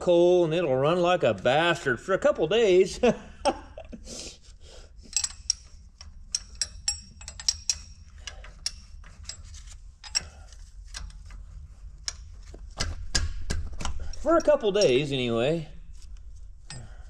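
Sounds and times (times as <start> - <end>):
steady low hum: 0.0 - 17.0
wrench clicking and clinking on metal: 5.0 - 15.6, 16.6 - 17.0.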